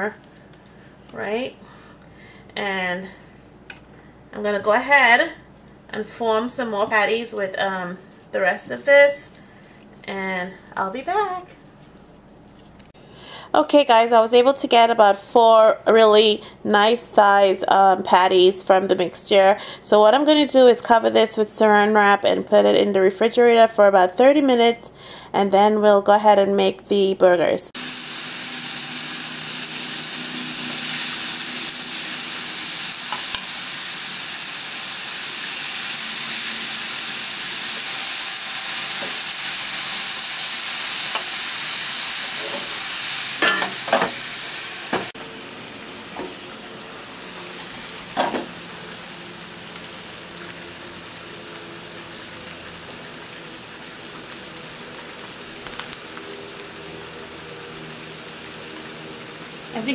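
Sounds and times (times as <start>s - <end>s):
burger patties sizzling on grill: 27.8s - 59.9s.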